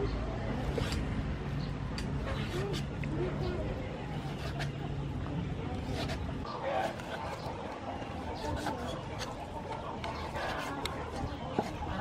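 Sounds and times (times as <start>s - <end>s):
cleaver slicing meat: 4.1s - 4.8s, 5.8s - 12.0s.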